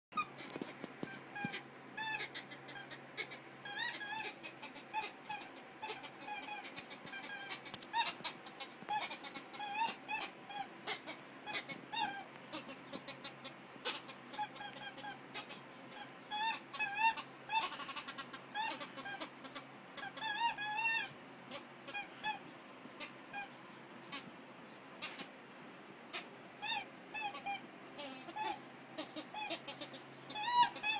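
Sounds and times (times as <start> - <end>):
squeaky dog toy squeaking: 0.1 - 0.4, 1.0 - 3.0, 3.6 - 10.7, 11.5 - 12.3, 13.9 - 15.2, 16.0 - 17.9, 20.0 - 21.1, 26.6 - 28.6, 29.3 - 30.9.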